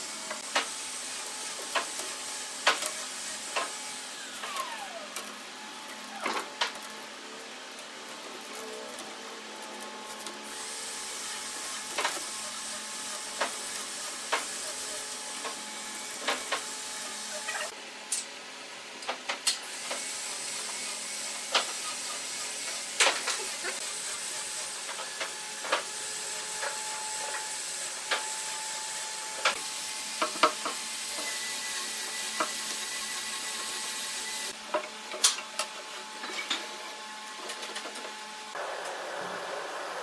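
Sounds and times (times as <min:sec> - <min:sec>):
gas torch flame hissing: 0:10.5 - 0:17.4.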